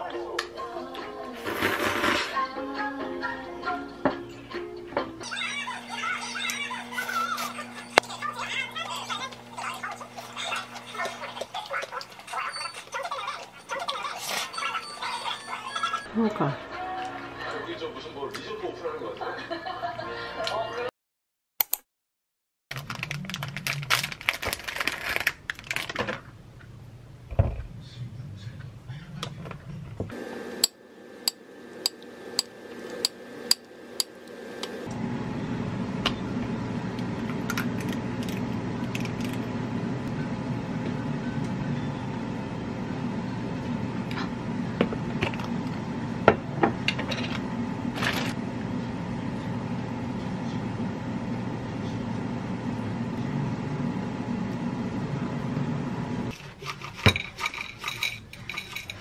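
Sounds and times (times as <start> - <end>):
air fryer humming: 4.5 - 20.0, 30.0 - 56.4
plastic wrapper rustling: 22.7 - 26.2
metal spoon clinking on plate: 57.0 - 59.0.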